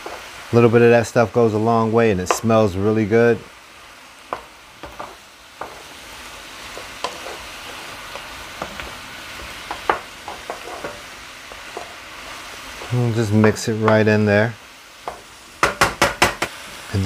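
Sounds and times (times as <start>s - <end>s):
food sizzling in a frying pan: 0.0s - 17.0s
wooden spoon scraping a pan: 4.3s - 14.3s.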